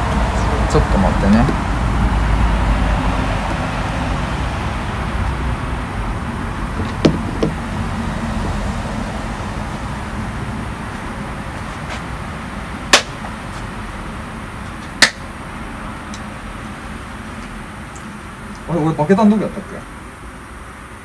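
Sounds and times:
steady background hiss: 0.0s - 21.0s
hand claps: 12.9s - 13.2s, 15.0s - 15.2s.

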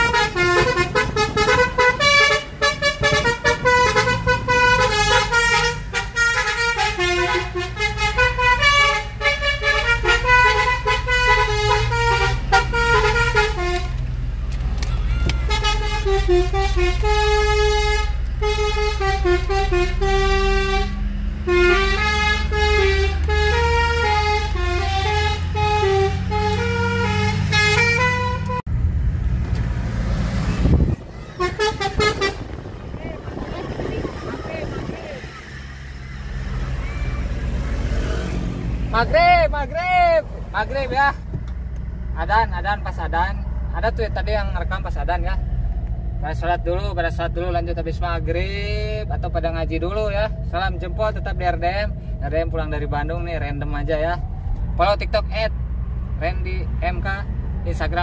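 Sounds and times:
multi-tone bus horn tune: 0.0s - 14.1s, 15.0s - 28.7s, 30.7s - 32.7s
car running and road noise: 0.0s - 58.0s.

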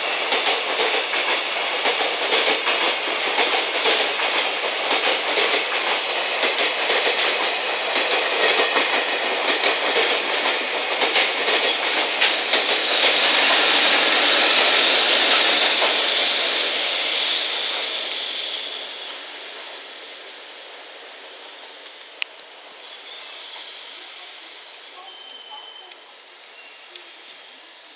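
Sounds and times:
train wheels clickety-clack: 0.0s - 20.2s
locomotive hiss: 0.0s - 27.9s.

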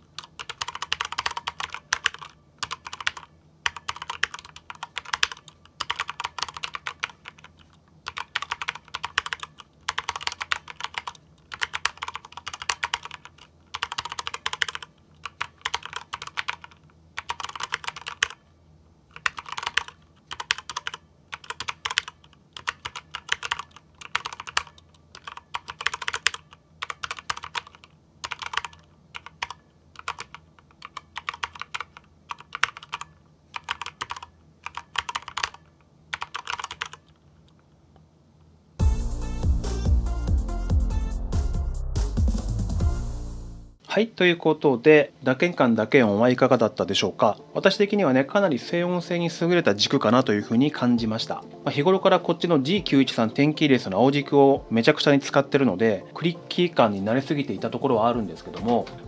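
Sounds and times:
quiet keyboard typing: 0.0s - 18.4s, 19.1s - 37.6s, 56.6s - 59.0s.

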